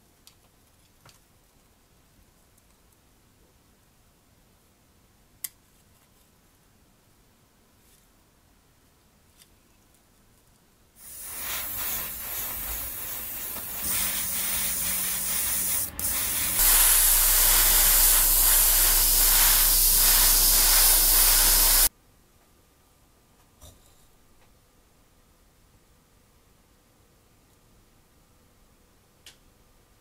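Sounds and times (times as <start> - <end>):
spray paint hiss: 11.0 - 21.9.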